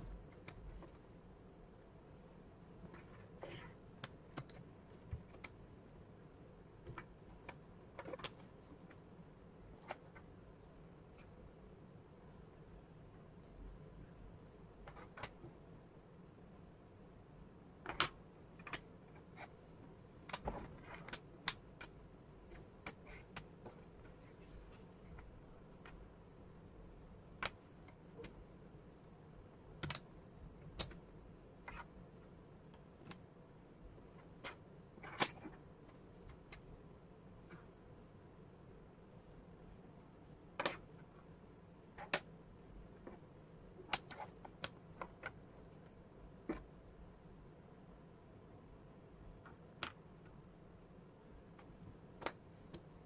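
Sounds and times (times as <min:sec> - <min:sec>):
wooden puzzle pieces clicking: 0:17.8 - 0:19.5, 0:40.6 - 0:40.8, 0:43.8 - 0:45.5.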